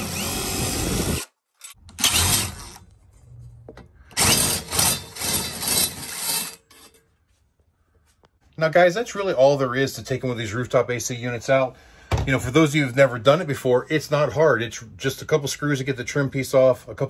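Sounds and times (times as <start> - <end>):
power drill-driver running: 0.0 - 2.9, 4.2 - 6.5.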